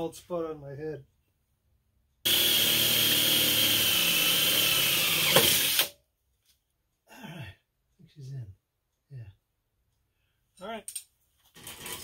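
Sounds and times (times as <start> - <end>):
cordless drill whining on metal: 2.3 - 6.0.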